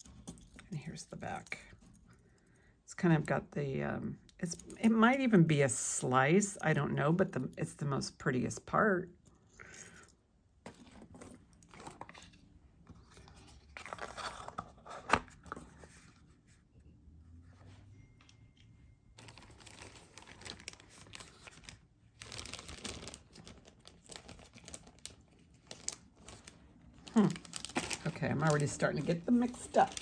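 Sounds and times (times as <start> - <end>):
plastic bags crinkling: 19.2 - 30.0.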